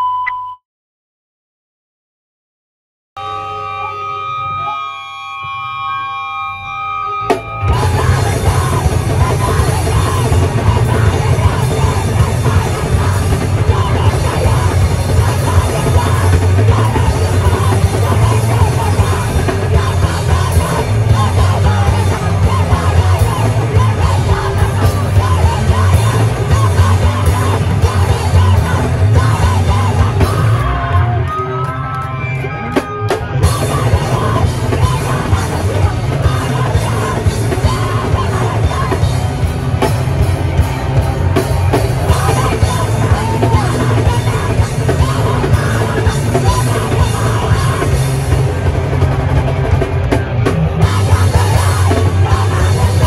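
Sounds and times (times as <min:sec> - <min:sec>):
live rock band playing: 0:03.2 - 0:53.0.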